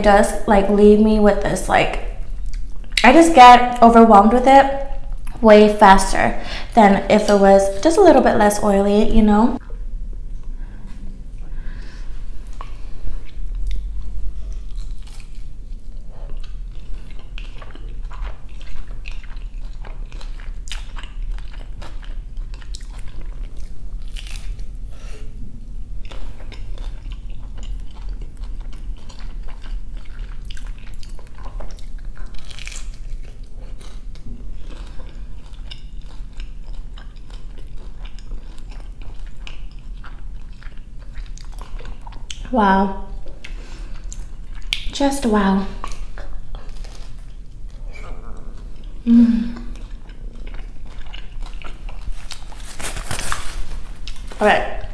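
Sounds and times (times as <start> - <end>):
wet chewing: 12.4 - 24.7, 26.0 - 45.0, 45.7 - 54.9.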